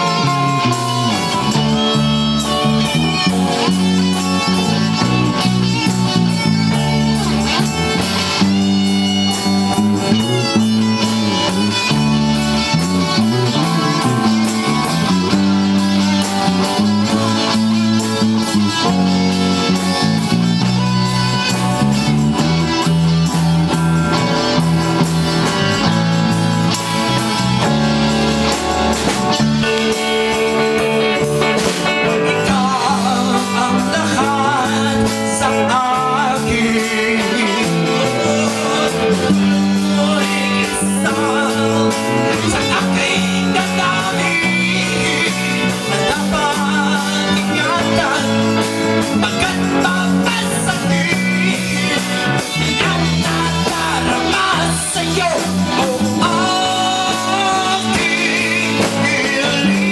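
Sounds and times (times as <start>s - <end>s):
band playing live: 0.0s - 59.9s.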